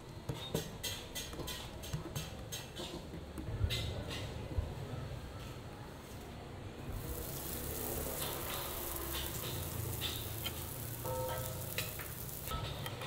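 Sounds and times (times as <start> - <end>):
dough sizzling on griddle: 6.9 - 13.0.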